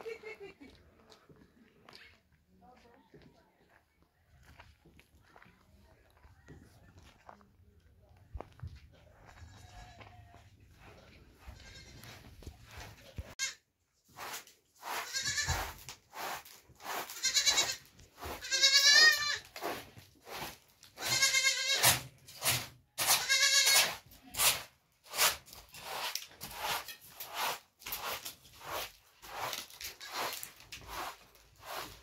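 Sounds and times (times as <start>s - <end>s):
young goat bleating: 9.4s - 10.4s, 11.4s - 12.2s, 13.3s - 13.6s, 15.0s - 15.6s, 17.1s - 19.4s, 21.0s - 22.0s, 23.2s - 23.9s
broom sweeping carpet: 14.0s - 21.2s, 23.8s - 32.0s.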